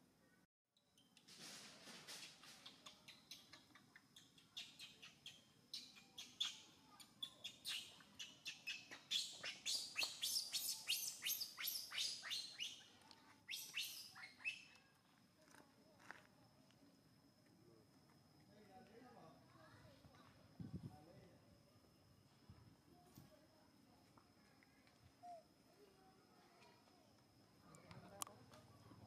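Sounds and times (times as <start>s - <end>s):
baby monkey squealing: 7.2s - 12.8s, 13.5s - 14.6s.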